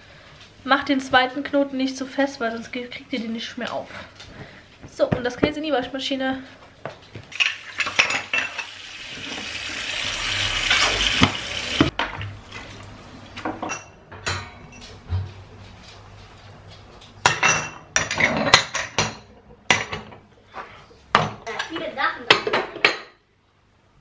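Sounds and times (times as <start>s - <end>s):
dishes clinking and knocking: 7.3s - 9.5s, 13.4s - 15.4s, 17.1s - 20.3s, 21.1s - 23.2s
tap running into sink: 10.6s - 12.3s
plates clattering when stacked: 17.2s - 20.3s.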